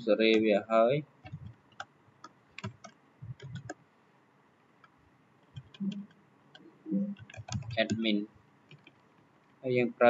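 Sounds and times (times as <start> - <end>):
low hum of a voice: 0.0 - 1.5, 6.9 - 8.3, 9.7 - 10.0
keyboard keys clicking: 1.2 - 3.8, 5.4 - 6.1, 7.1 - 9.0.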